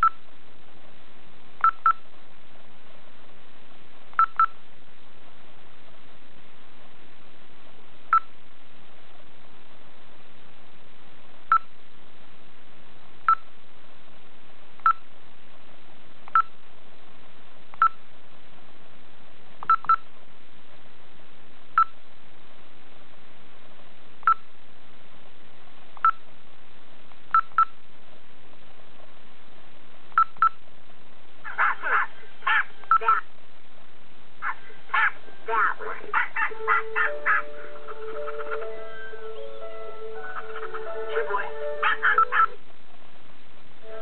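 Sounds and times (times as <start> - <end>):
electronic beeps: 0.0 - 0.2, 4.2 - 4.6, 36.4 - 42.6
video audio from small speaker: 0.0 - 44.0.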